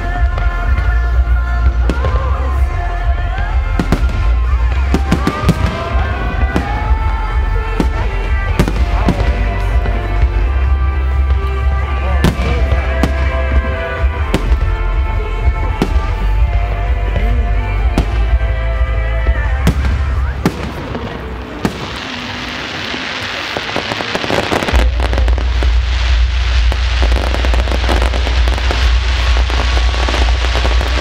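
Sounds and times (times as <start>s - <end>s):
fireworks bangs: 0.0s - 31.0s
fireworks crackle: 0.0s - 31.0s
music playing: 0.0s - 31.0s
low rumble: 24.7s - 31.0s.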